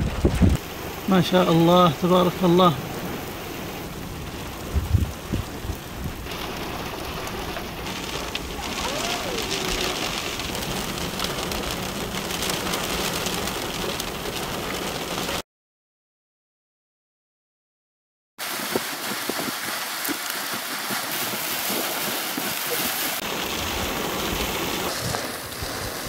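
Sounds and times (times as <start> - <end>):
heavy rain on ground: 0.0 - 15.4, 18.4 - 26.0.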